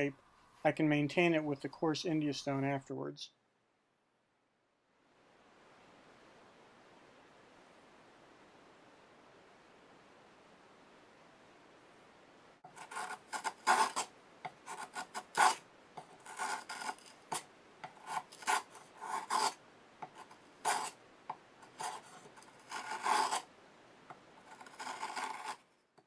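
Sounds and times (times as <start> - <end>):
plane scraping wood shavings: 12.7 - 14.1, 14.7 - 17.4, 18.0 - 19.6, 20.2 - 20.9, 21.6 - 23.4, 24.4 - 25.6.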